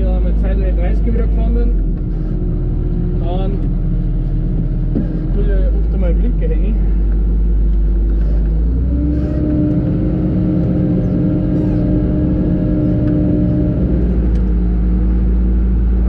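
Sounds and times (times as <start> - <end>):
diesel engine from inside cab: 0.0 - 16.0.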